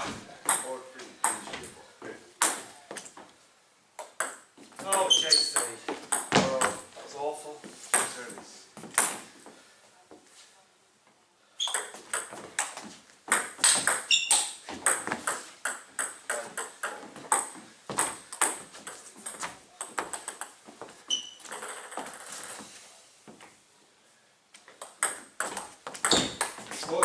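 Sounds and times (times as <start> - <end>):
shoes squeaking on wooden floor: 0.0 - 3.4, 4.5 - 7.0, 11.6 - 23.6, 24.6 - 27.0.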